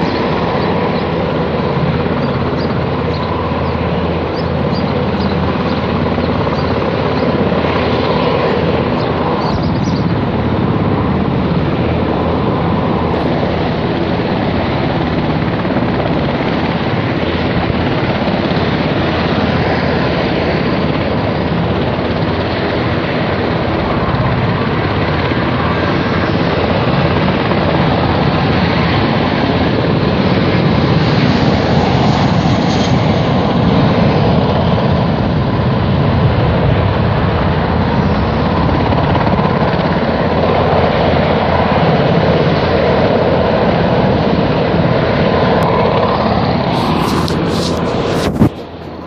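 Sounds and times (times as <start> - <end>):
aircraft engine drone: 0.0 - 49.0.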